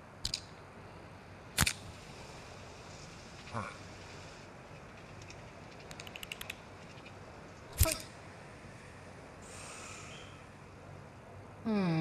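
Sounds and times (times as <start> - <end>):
quick ticks: 4.8 - 7.1.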